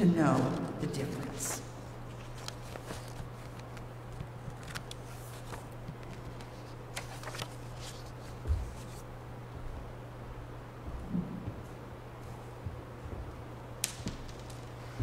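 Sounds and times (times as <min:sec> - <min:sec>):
low electrical hum: 0:00.0 - 0:15.0
soft clicks and rustles: 0:00.2 - 0:09.1, 0:10.9 - 0:15.0.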